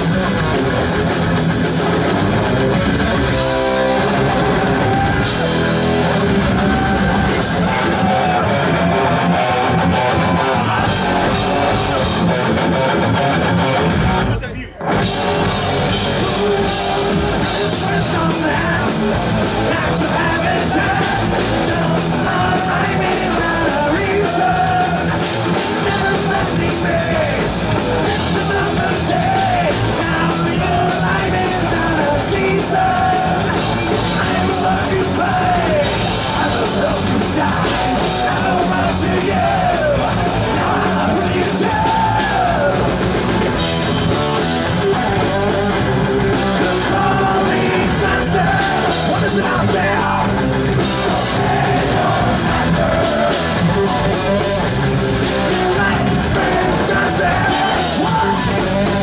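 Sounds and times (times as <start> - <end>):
bass guitar: 0.0 - 59.0
drum kit: 0.0 - 59.0
electric guitars: 0.0 - 59.0
person singing: 15.0 - 43.0, 44.6 - 59.0.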